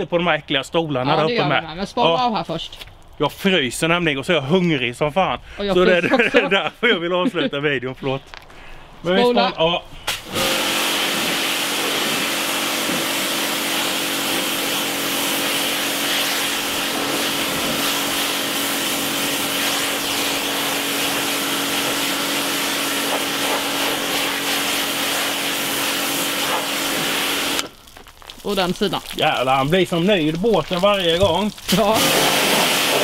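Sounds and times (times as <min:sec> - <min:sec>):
pressure washer spray hissing: 0:10.1 - 0:27.7, 0:31.7 - 0:33.0
pressure washer motor hum: 0:10.1 - 0:27.8, 0:31.7 - 0:33.0.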